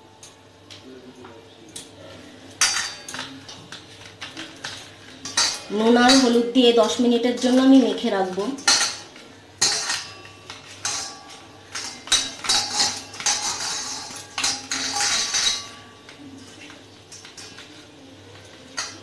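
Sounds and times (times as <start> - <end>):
steel bowl ringing: 5.2 - 16.3.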